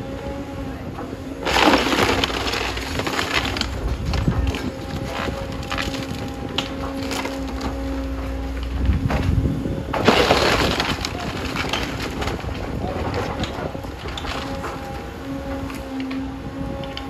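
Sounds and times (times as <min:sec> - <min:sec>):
excavator engine and hydraulics humming: 0:00.0 - 0:17.0
wall section crashing: 0:01.4 - 0:05.8, 0:09.9 - 0:14.8
boards cracking and splintering: 0:01.4 - 0:16.2.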